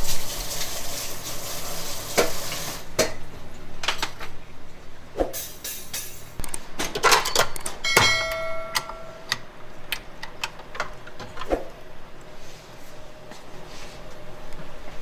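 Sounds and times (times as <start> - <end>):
metal bowl clanking: 7.9 - 9.3.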